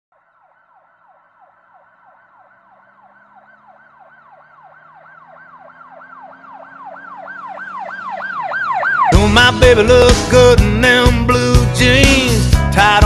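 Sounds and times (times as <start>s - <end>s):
electronic yelp siren: 0.1s - 9.4s.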